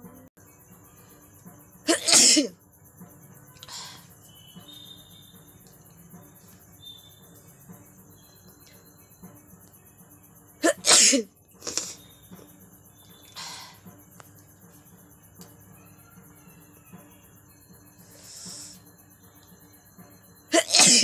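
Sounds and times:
woman sneezing loudly: 20.5 - 21.0.

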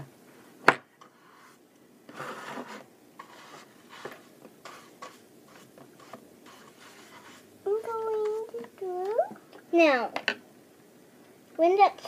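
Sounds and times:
paintbrush strokes: 1.1 - 8.5.

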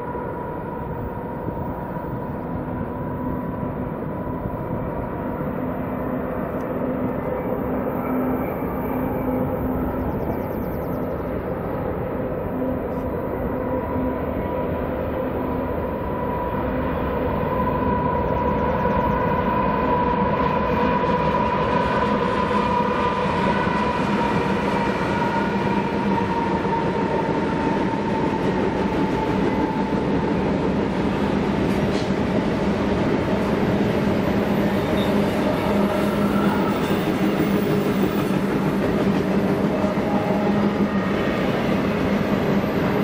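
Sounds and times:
diesel locomotives passing: 0.0 - 43.0.

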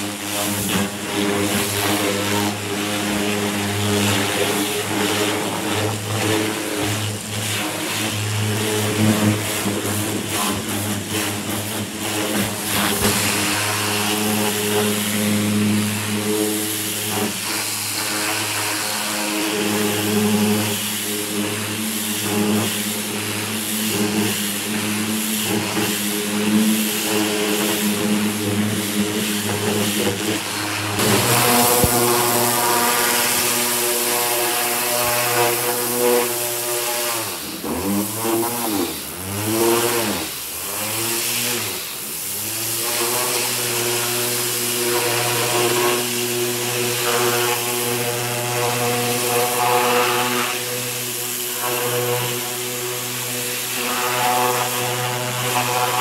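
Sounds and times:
pressure washer water jet hissing: 0.0 - 56.0
washer motor and pump hum: 0.0 - 56.0.

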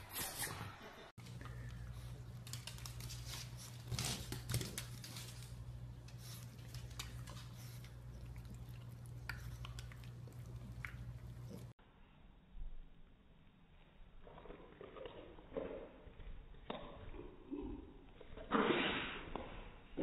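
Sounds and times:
dog clicking on hardwood floor: 2.3 - 5.6, 6.6 - 7.6.

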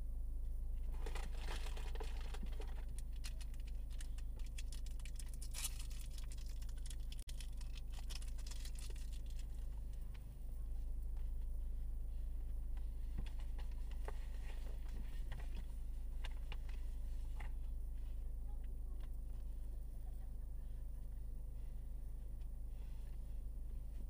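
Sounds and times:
low cabin hum: 0.0 - 24.0
crinkling and rustling: 0.8 - 19.6.

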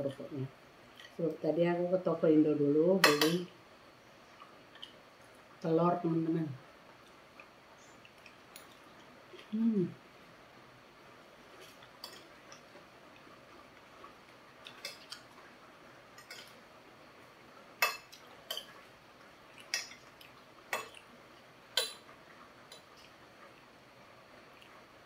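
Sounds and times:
cutlery clinking on ceramic plate: 3.0 - 3.4.

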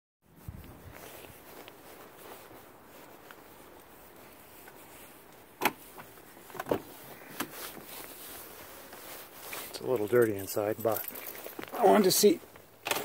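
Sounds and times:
car door opening: 5.6 - 5.8.

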